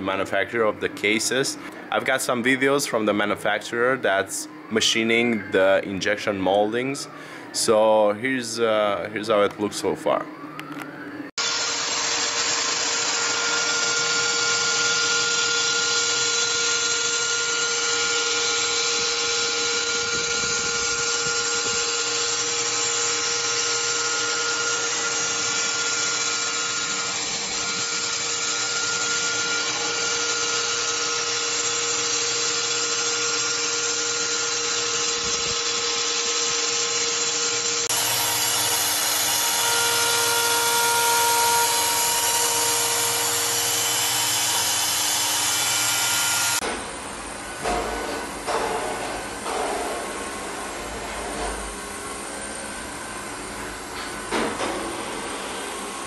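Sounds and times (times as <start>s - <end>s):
milling machine whine: 9.7s - 48.6s.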